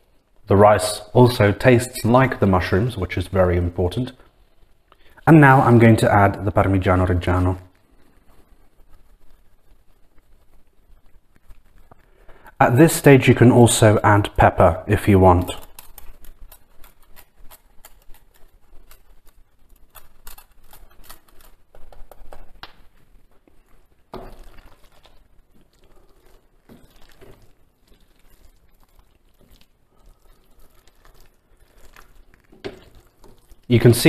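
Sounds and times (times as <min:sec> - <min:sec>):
cheese grating on hand grater: 0:15.4 - 0:22.6.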